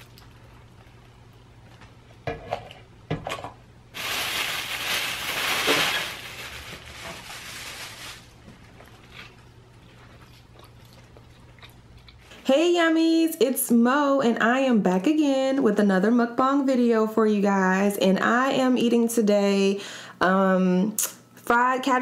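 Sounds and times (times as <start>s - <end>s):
plastic bag and paper crinkling: 3.9s - 10.3s.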